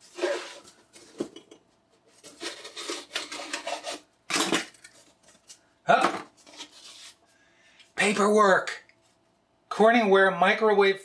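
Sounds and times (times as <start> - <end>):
cardboard rubbing and scraping: 0.0 - 1.1, 6.4 - 7.2.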